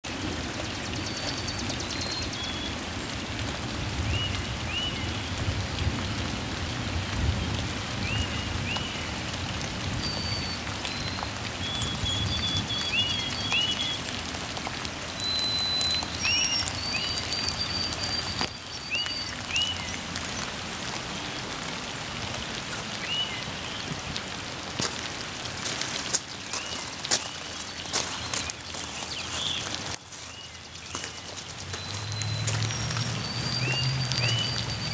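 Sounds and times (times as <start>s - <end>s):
rain on water and gravel: 0.0s - 34.9s
high chirping calls: 15.2s - 19.9s, 26.5s - 34.9s.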